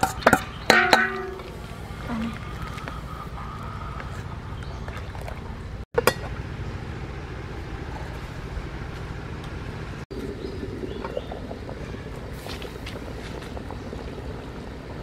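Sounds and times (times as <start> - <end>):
metal lid clanging on pot: 0.0 - 1.6
steady low rumble: 1.2 - 15.0.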